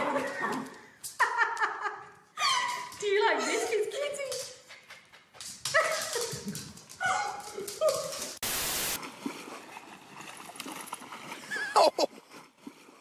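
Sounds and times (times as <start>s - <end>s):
static-like hiss: 8.4s - 9.0s.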